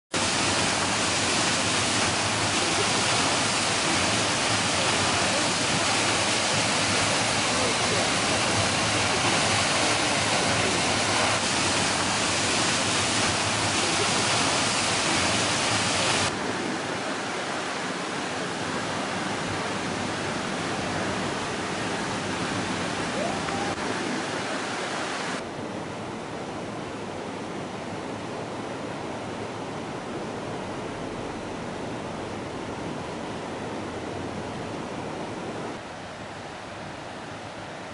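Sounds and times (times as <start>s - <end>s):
waterfall rushing: 0.2s - 25.4s
shallow rocky river rushing: 0.2s - 25.5s.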